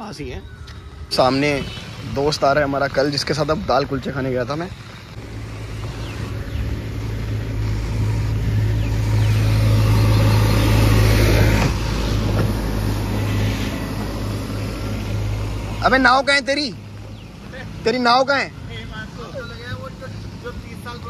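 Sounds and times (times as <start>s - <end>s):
wind: 0.0s - 21.0s
motor scooter engine running: 0.8s - 16.2s.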